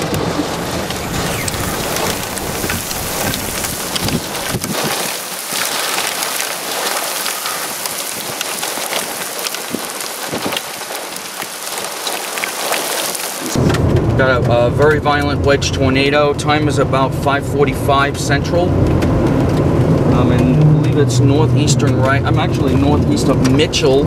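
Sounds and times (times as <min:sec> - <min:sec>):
heavy rain pelting vehicle: 0:00.0 - 0:24.0
low rumble: 0:00.6 - 0:05.9, 0:13.6 - 0:22.8.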